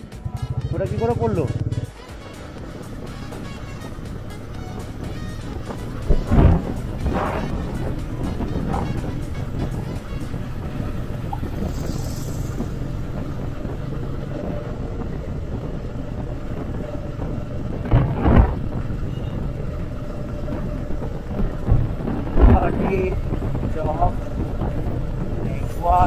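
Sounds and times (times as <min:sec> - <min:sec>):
motorcycle engine and road rumble: 0:00.0 - 0:26.0
loud thumps: 0:02.7 - 0:13.6, 0:16.6 - 0:19.1.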